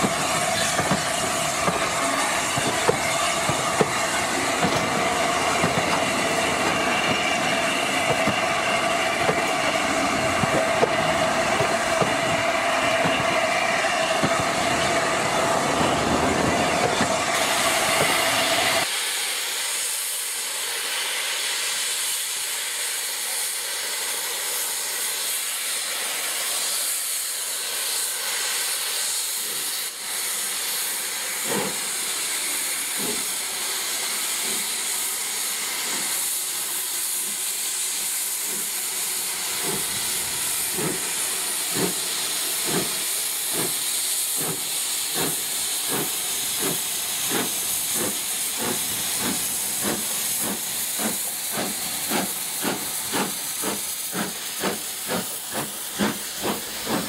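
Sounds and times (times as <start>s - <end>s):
steam locomotive exhaust beats: 0.0s - 57.0s
steam drain cocks hissing: 27.8s - 57.0s.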